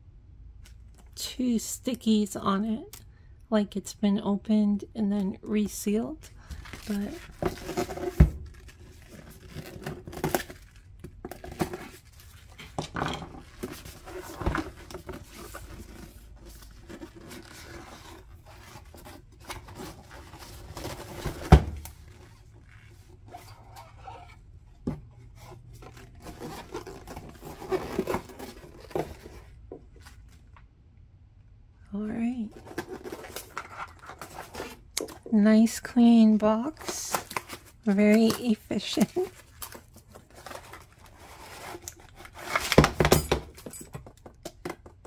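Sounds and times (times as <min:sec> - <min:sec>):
cardboard flaps scraping and rustling: 0:06.6 - 0:12.7, 0:13.4 - 0:24.4, 0:25.2 - 0:30.4, 0:36.8 - 0:43.0.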